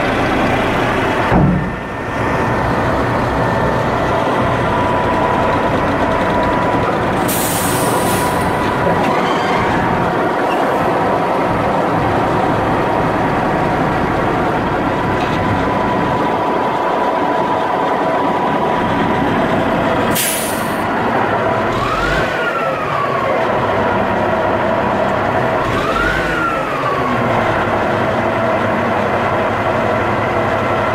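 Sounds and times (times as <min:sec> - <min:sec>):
diesel engine idling: 0:00.0 - 0:30.9.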